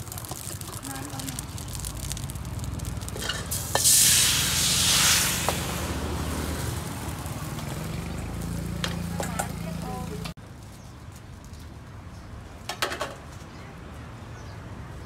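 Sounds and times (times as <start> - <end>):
batter sizzling in hot wok: 0.0 - 10.3.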